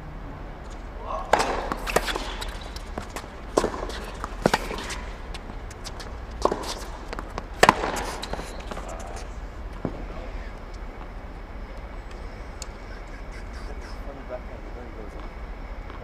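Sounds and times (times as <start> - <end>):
tennis racket striking ball: 1.2 - 8.9
tennis ball bouncing: 1.2 - 10.0.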